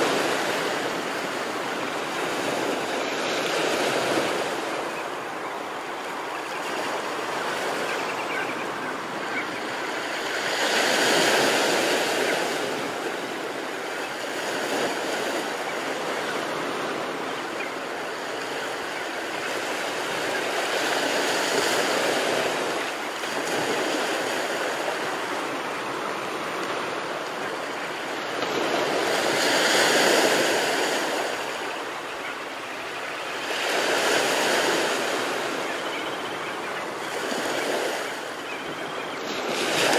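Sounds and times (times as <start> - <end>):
ocean surf breaking on a beach: 0.0 - 39.9.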